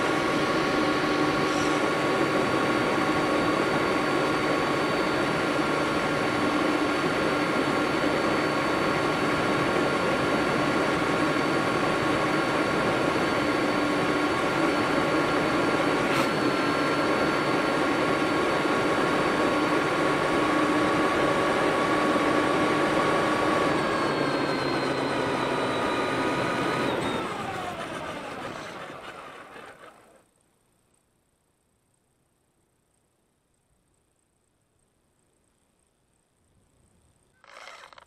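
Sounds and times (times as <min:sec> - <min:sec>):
electric motor whining: 0:00.0 - 0:30.2, 0:37.4 - 0:38.0
tyres on gravel road: 0:25.6 - 0:30.4, 0:37.4 - 0:38.0.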